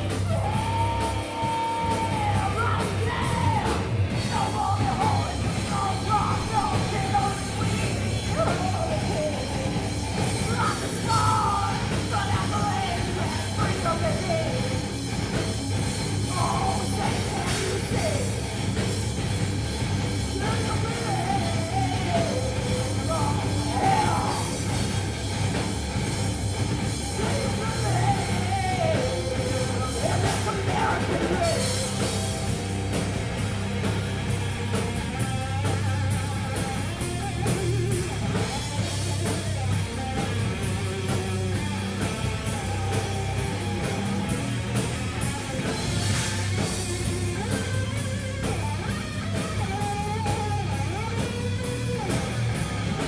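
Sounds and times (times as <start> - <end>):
drum kit with crashing cymbals: 0.0 - 53.0
electric guitars: 0.0 - 53.0
woman singing: 0.2 - 9.6, 10.4 - 14.6, 20.3 - 24.5, 27.2 - 31.8.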